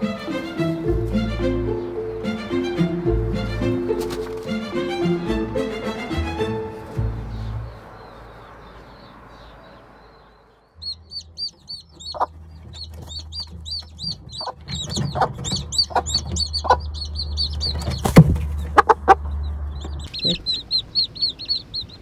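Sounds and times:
background music: 0.0s - 8.0s
hen clucking: 0.0s - 22.0s
small bird chirping rapidly: 7.2s - 22.0s.

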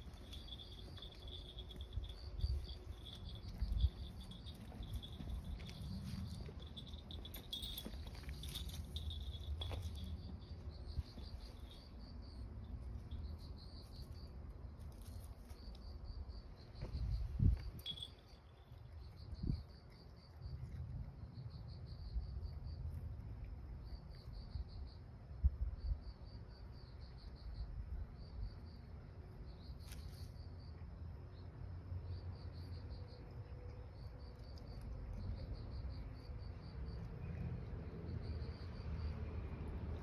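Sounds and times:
insects chirping in high trills: 0.0s - 40.0s.

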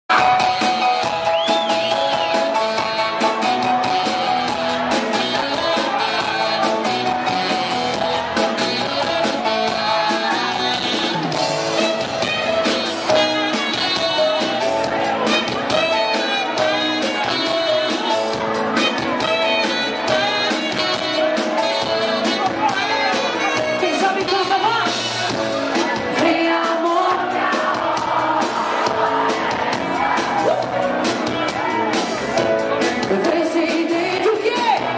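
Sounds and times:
drum beat: 0.1s - 33.4s
live pop-rock band playing: 0.1s - 34.9s
person singing: 2.0s - 18.4s, 26.1s - 29.4s, 32.8s - 34.9s.

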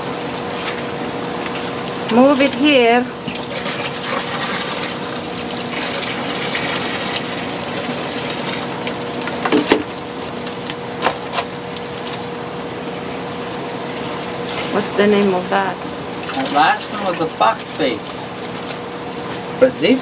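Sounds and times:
pump hum: 0.0s - 20.0s
running water: 1.5s - 9.0s, 16.1s - 18.6s.

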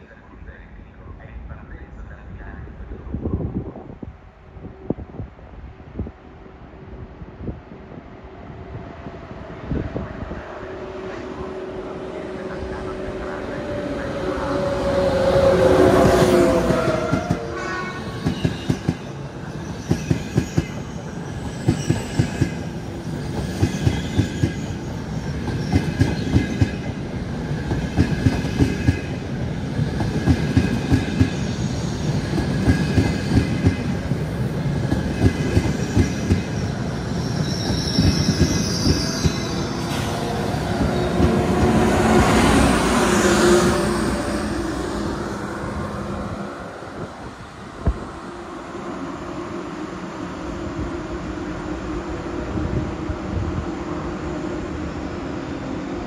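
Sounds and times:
high wheel squeal: 35.7s - 41.6s.

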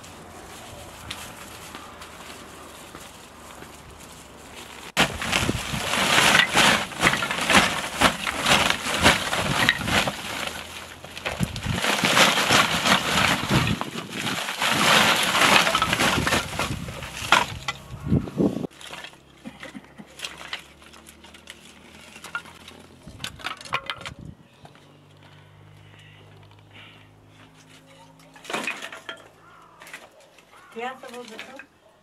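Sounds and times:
plastic sack crinkling: 0.0s - 17.8s
wooden kindling clattering: 0.0s - 24.8s, 27.4s - 31.8s.

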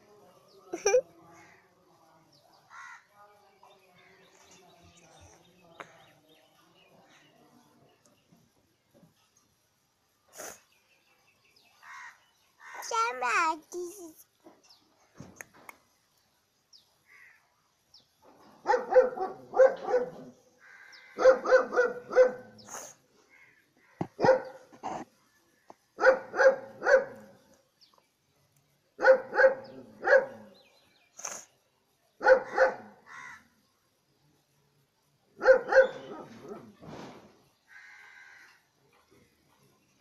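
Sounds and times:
dog barking: 18.6s - 20.4s, 21.2s - 22.6s, 24.1s - 25.0s, 26.0s - 27.3s, 29.0s - 30.5s, 32.2s - 33.0s, 35.4s - 36.8s.

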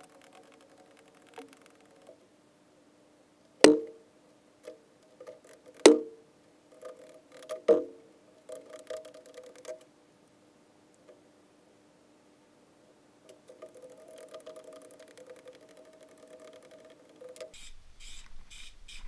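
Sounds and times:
light clicks and rattles: 0.0s - 2.2s, 6.7s - 7.8s, 8.4s - 9.9s, 13.3s - 17.6s
faint steady hum: 0.0s - 19.0s.

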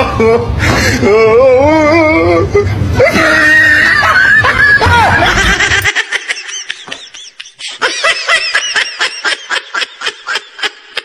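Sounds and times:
man laughing hard: 2.5s - 11.0s.

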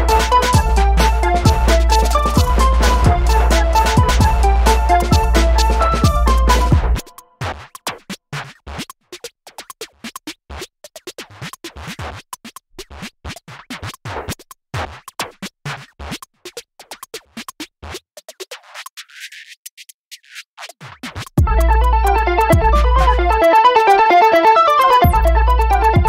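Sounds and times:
electronic music with heavy bass: 0.0s - 7.2s, 21.4s - 26.0s
sharp clicking percussion: 0.0s - 23.8s.

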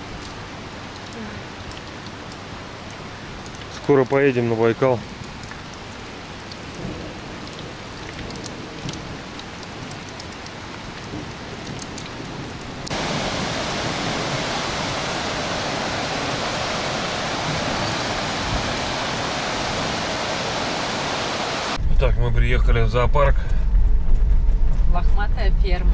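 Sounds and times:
drops ticking: 0.0s - 12.2s
rain falling: 0.0s - 21.8s
steady rushing noise: 12.8s - 25.9s.

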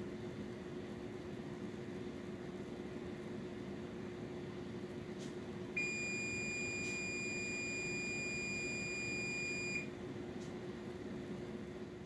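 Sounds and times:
oven humming: 0.1s - 12.0s
oven timer beep: 5.8s - 9.9s.

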